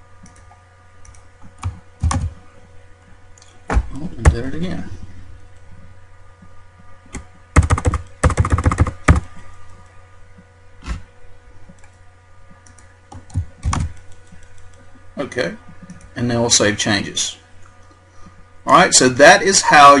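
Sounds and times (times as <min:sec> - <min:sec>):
steady low hum: 0:00.0 - 0:20.0
computer keyboard typing: 0:00.2 - 0:02.3, 0:07.6 - 0:09.2, 0:12.6 - 0:14.8.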